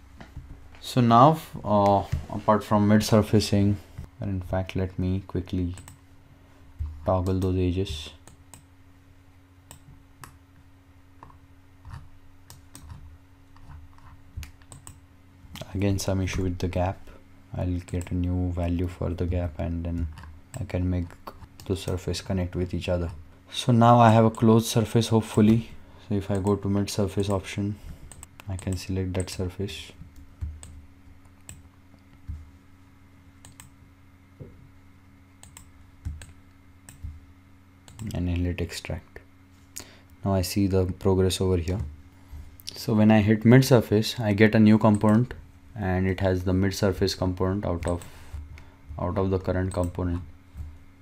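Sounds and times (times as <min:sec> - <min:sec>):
faint steady hum: 0:00.0 - 0:51.0
computer mouse clicking: 0:11.2 - 0:15.0, 0:30.2 - 0:32.4, 0:33.4 - 0:33.8, 0:35.4 - 0:37.2, 0:37.9 - 0:38.2, 0:44.9 - 0:45.2
soft low thumps: 0:36.9 - 0:37.3.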